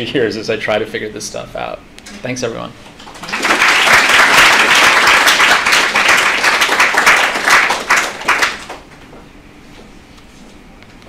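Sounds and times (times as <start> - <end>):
audience applauding: 3.0 - 8.9.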